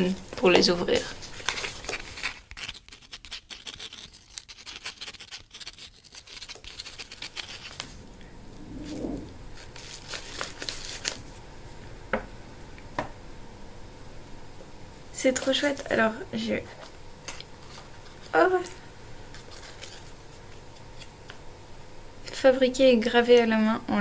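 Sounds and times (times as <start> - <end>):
packaging crackling and rustling: 0.1 - 8.2, 8.8 - 11.4, 16.7 - 21.4.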